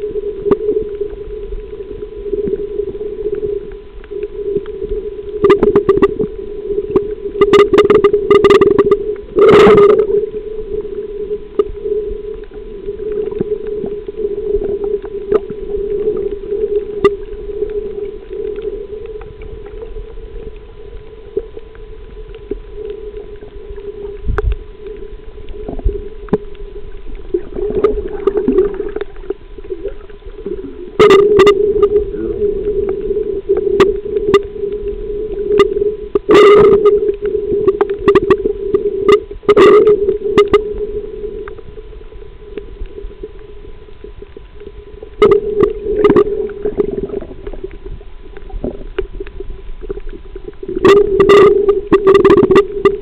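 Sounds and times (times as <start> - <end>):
quiet crackling: 0.0 - 53.0
steady hum: 0.0 - 53.0.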